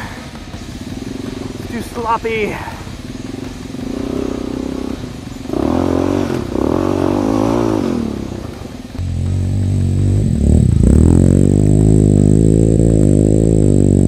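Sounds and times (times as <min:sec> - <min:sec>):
atv engine revving: 0:00.0 - 0:14.0.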